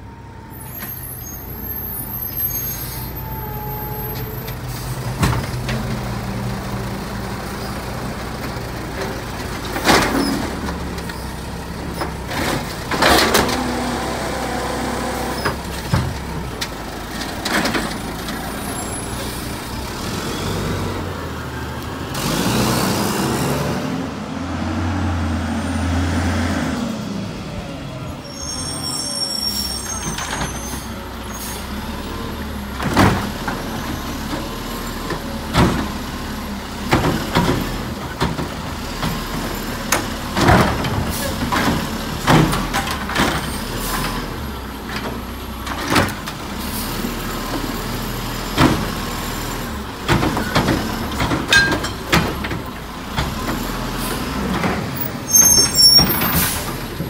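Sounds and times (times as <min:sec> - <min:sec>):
garbage truck engine hum: 0:00.0 - 0:57.0.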